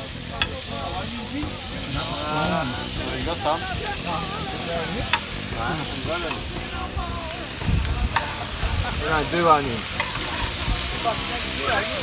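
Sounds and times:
bacon sizzling in frying pans: 0.0s - 12.0s
metal spatula clicks and scrapes: 9.9s - 10.6s.

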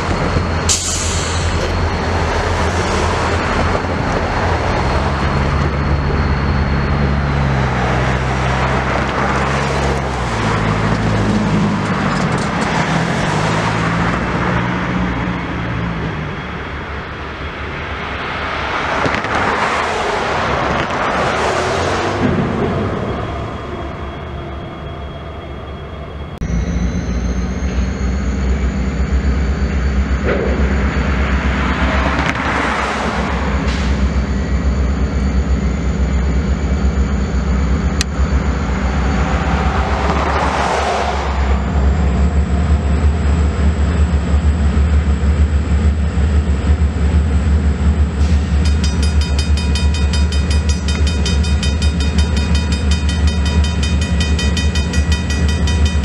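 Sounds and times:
diesel locomotive engine rumbling: 0.0s - 56.0s
train passing noise: 0.0s - 56.0s.

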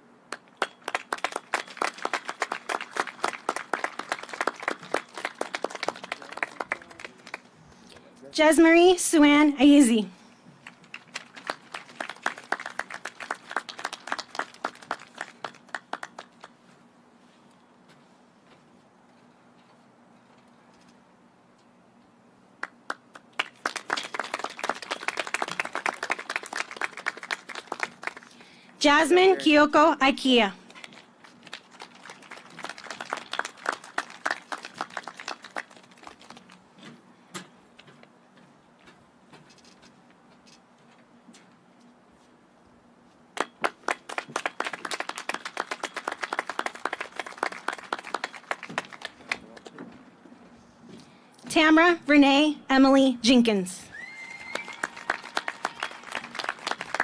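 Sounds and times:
people clapping: 0.3s - 7.6s, 10.6s - 16.6s, 22.6s - 28.6s, 30.7s - 36.7s, 43.4s - 49.9s, 54.2s - 57.0s.

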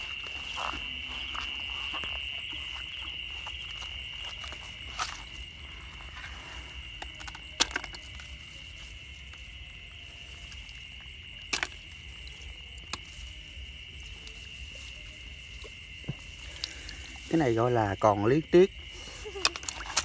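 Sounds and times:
night insects droning: 0.0s - 20.0s
hands clicking in grass and water: 6.0s - 18.4s, 19.2s - 20.0s.

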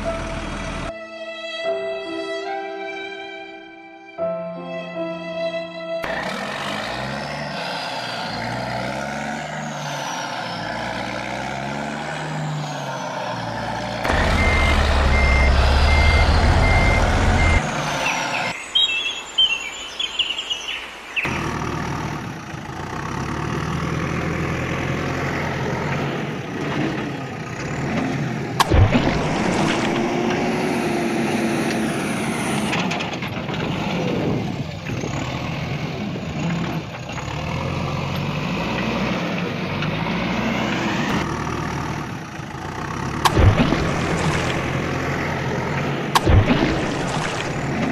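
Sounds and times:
heavy truck engine rumble: 0.0s - 0.9s, 6.0s - 18.6s, 21.3s - 47.9s
reversing beeper: 12.4s - 18.6s.

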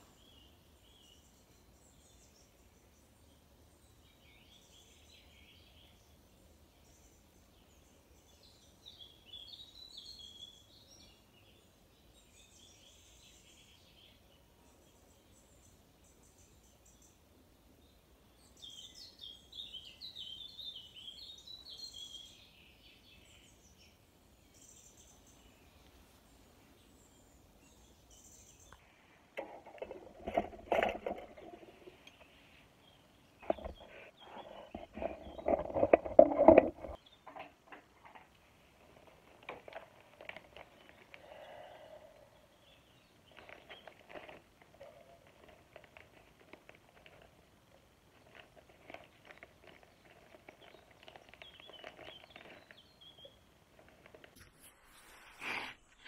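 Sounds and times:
skewers clattering: 29.4s - 32.2s, 34.6s - 40.8s
plastic bag crinkling: 43.3s - 47.5s, 48.1s - 52.8s.

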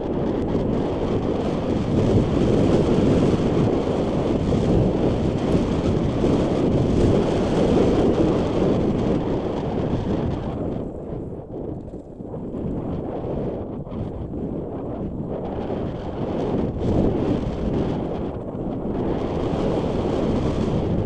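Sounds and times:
wind buffeting microphone: 0.0s - 21.0s
bike tyres on dirt trail: 11.6s - 12.4s.

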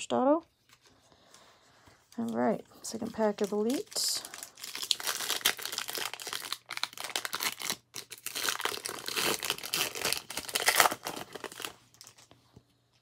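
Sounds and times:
foil wrapper tearing and crinkling: 3.0s - 12.3s.

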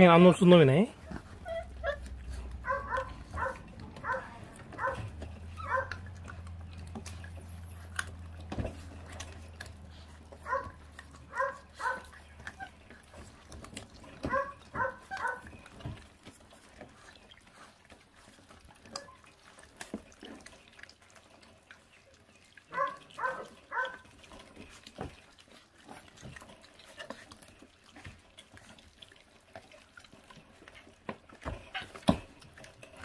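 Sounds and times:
chewing on meat and bone: 0.0s - 33.0s
puppies yipping: 1.0s - 19.9s, 22.0s - 27.3s.

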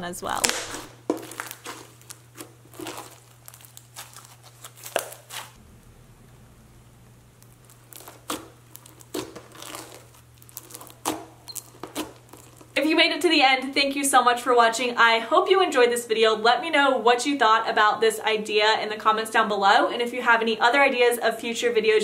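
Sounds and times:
slime crackling and popping: 0.3s - 5.6s, 7.2s - 12.8s.

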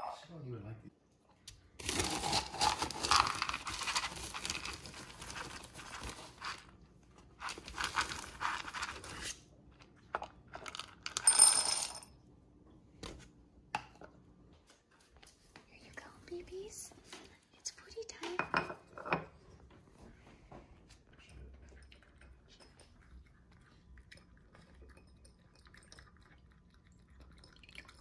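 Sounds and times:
plastic crinkling: 1.8s - 6.7s
kibble clattering into ceramic bowl: 10.5s - 12.1s.

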